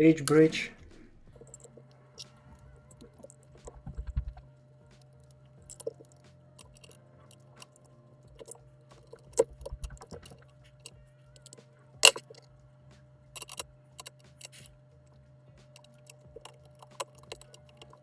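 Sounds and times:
faint steady hum: 0:00.0 - 0:18.0
screwdriver clicks and scrapes: 0:08.4 - 0:12.4, 0:13.4 - 0:14.7, 0:15.8 - 0:18.0.

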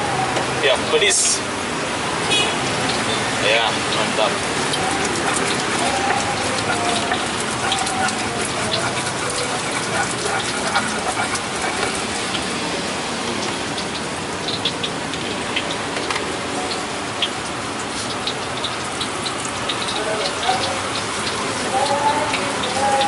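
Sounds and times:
stone pestle grinding in mortar: 0:04.4 - 0:12.5.

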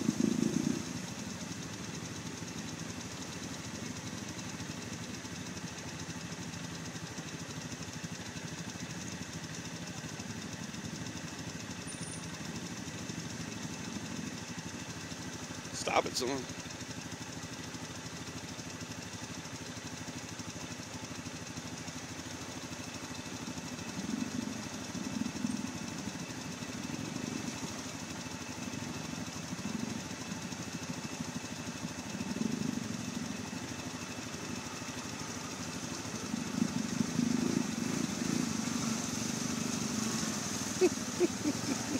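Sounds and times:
atv engine revving: 0:00.0 - 0:04.8, 0:22.4 - 0:41.9.

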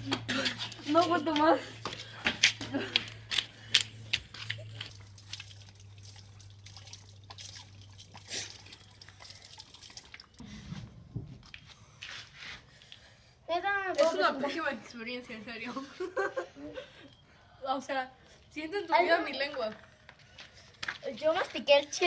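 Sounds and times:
water splashing into drain: 0:04.8 - 0:10.4
low rumble: 0:10.4 - 0:12.0.

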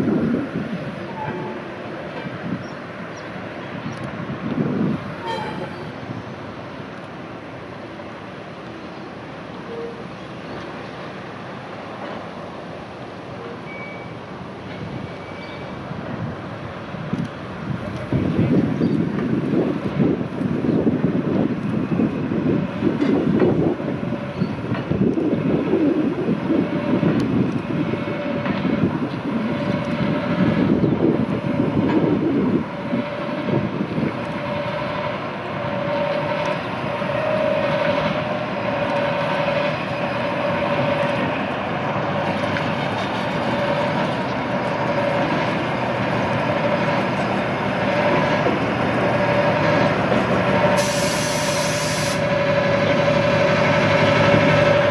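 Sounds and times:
diesel locomotive engine: 0:00.0 - 0:54.9
engine whine: 0:00.0 - 0:54.9
wheels clattering on rails: 0:13.1 - 0:50.9, 0:52.2 - 0:54.9.

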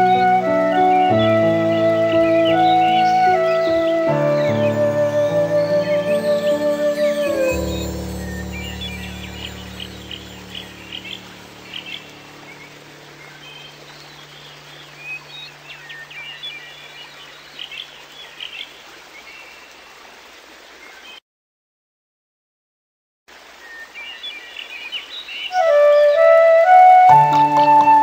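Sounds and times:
soft music: 0:00.0 - 0:16.8, 0:25.5 - 0:28.0.

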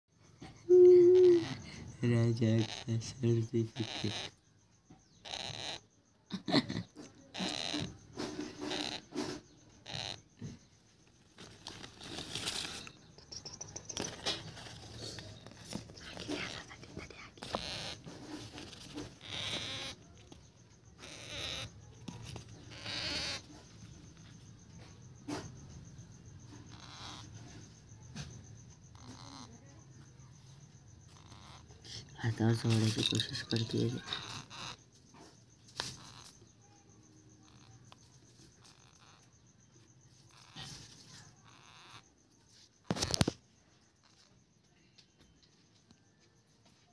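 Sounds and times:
rustling and scratching on newspaper: 0:11.0 - 0:20.4, 0:21.1 - 0:24.0.

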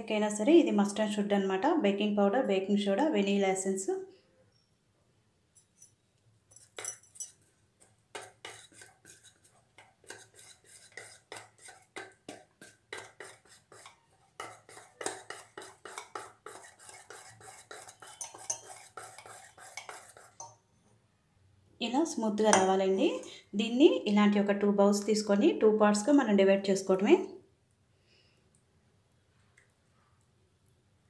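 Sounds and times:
wire whisk beating batter in bowl: 0:07.8 - 0:20.6.

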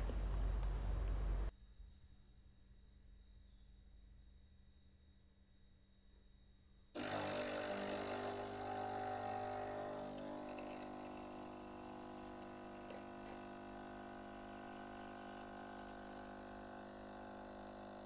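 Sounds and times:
espresso machine pump humming: 0:07.0 - 0:18.0.

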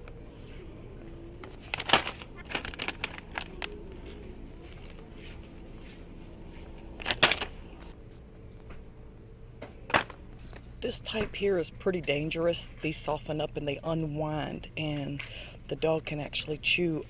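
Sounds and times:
steady low hum: 0:00.0 - 0:17.0
plastic bags crinkling: 0:01.4 - 0:05.1, 0:06.8 - 0:07.9.

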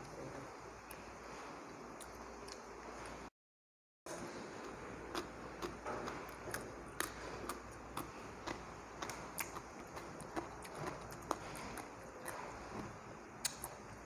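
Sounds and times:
person chewing crunchy food: 0:04.3 - 0:13.8.

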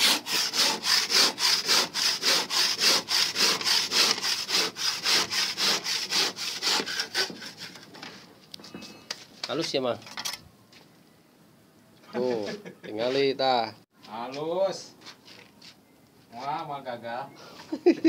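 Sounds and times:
hand saw cutting concrete block: 0:00.0 - 0:07.9.

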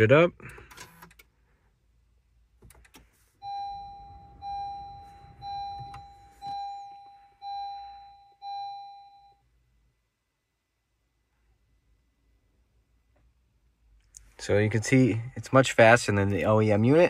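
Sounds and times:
dashboard warning chime: 0:03.4 - 0:09.5.

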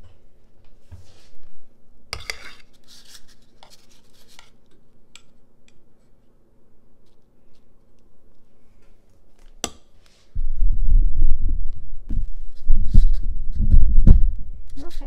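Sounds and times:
metal spoons scraping glass bowl: 0:02.2 - 0:03.0.

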